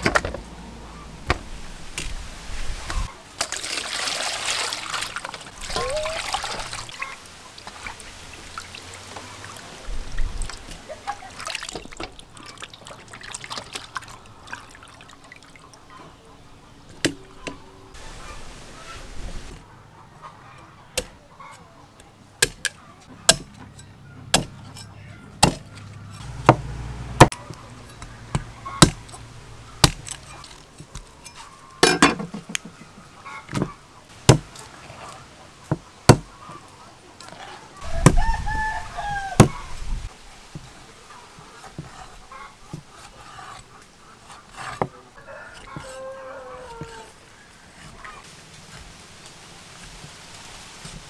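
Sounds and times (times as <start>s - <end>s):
bird calls: 27.4s - 30.6s, 31.3s - 40.0s
rooster crowing: 37.8s - 39.8s, 45.2s - 47.2s.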